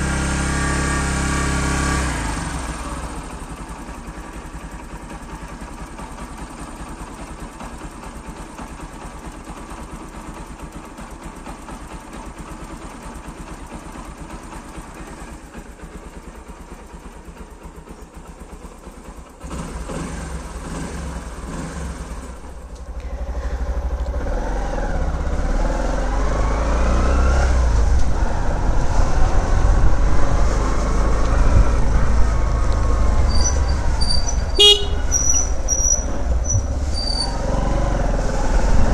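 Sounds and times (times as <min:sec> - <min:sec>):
motorcycle engine: 0:00.0 - 0:38.9
wind rumble on microphone: 0:27.6 - 0:34.6, 0:37.6 - 0:38.9.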